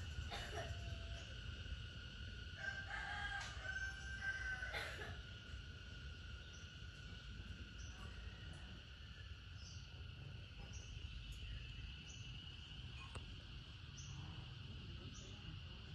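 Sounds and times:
insects droning: 0:00.0 - 0:15.9
rooster crowing: 0:02.5 - 0:05.2.

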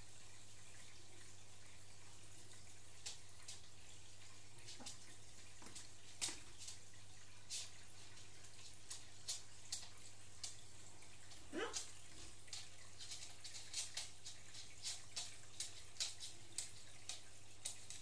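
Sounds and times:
aquarium water trickling: 0:00.0 - 0:18.0.

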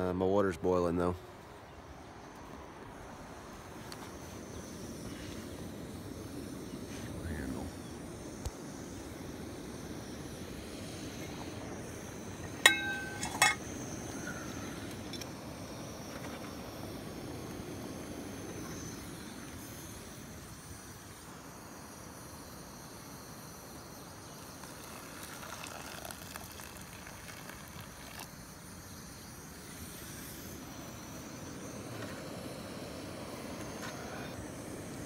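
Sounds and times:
camp stove roaring: 0:01.4 - 0:35.0
water boiling in a pot: 0:02.2 - 0:35.0
hot water pouring into a pot: 0:07.1 - 0:16.8, 0:23.9 - 0:28.7.

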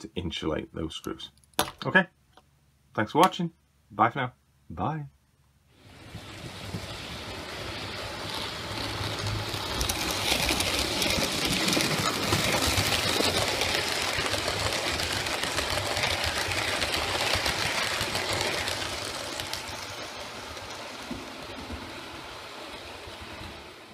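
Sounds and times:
model train running on track: 0:05.8 - 0:23.9.

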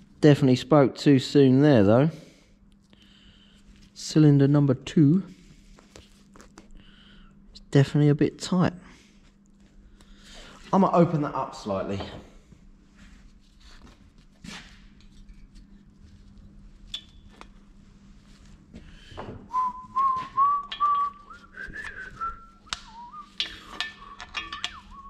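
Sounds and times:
man whistling a tune: 0:19.5 - 0:25.0.

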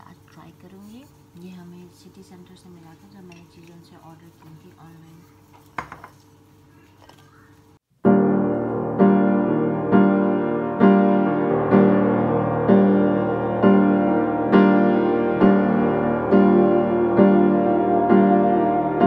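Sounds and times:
piano music: 0:07.9 - 0:19.0.

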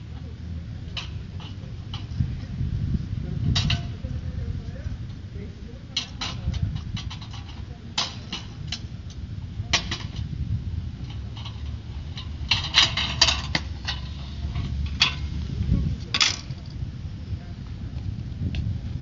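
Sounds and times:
casters rolling over asphalt: 0:00.0 - 0:19.0
metal frame rattling: 0:00.7 - 0:02.5, 0:03.2 - 0:04.4, 0:05.7 - 0:16.8.

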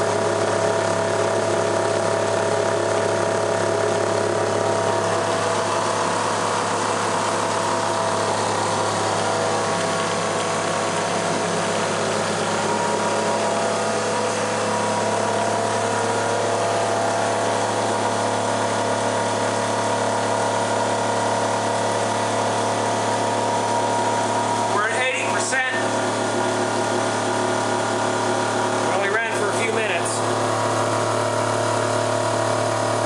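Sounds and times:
electric motor spinning alternator: 0:00.0 - 0:33.0.

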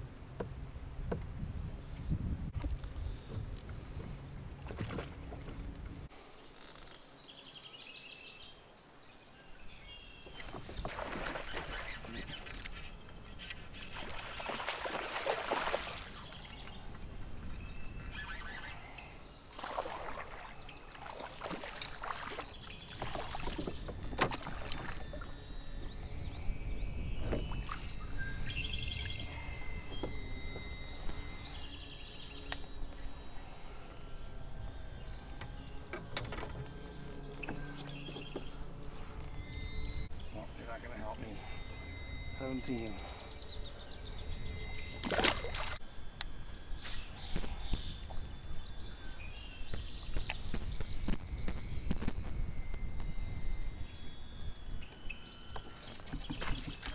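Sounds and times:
birds chirping: 0:00.4 - 0:56.9
fish splashing at the surface: 0:14.0 - 0:16.2.

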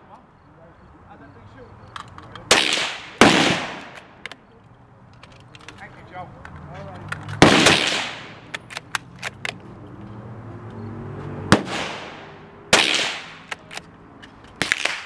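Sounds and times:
distant gunshots: 0:02.5 - 0:04.2, 0:07.4 - 0:08.5, 0:11.5 - 0:13.5
rifle shots: 0:02.5 - 0:04.2, 0:07.4 - 0:08.8, 0:11.5 - 0:13.7.

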